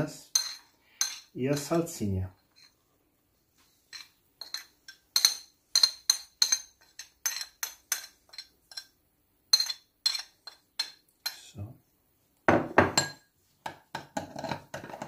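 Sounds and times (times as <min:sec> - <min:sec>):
spoon clinking on ceramic dishes: 0:00.2 - 0:01.8, 0:03.9 - 0:11.5, 0:12.5 - 0:15.0.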